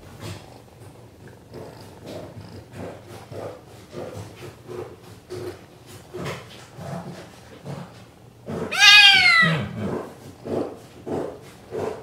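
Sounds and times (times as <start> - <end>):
kitten purring: 0.0 - 12.0
kitten meowing: 8.7 - 9.7.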